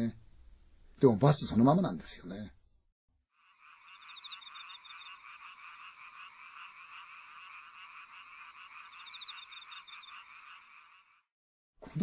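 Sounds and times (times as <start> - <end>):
insects trilling: 3.3 - 11.3
frogs calling: 3.4 - 11.3.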